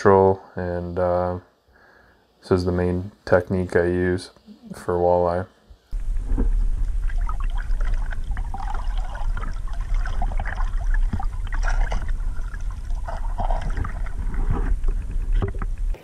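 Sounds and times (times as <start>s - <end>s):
crackling and bubbling: 5.9s - 16.0s
muffled underwater water rush: 6.0s - 16.0s.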